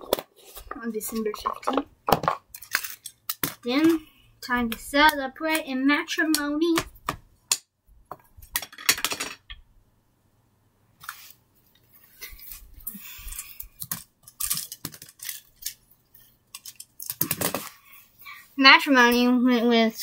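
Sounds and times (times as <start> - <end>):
clicks and rustles: 11.0 - 17.8.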